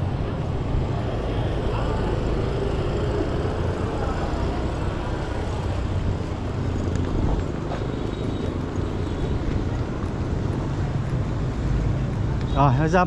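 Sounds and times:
faint voices: 0.0s - 6.3s
low street rumble: 0.0s - 13.0s
motorbike traffic: 0.0s - 13.0s.

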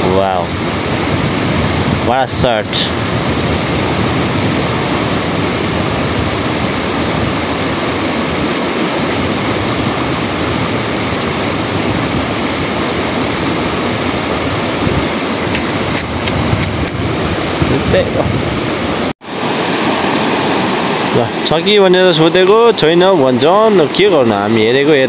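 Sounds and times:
river rushing over rocks: 0.0s - 25.0s.

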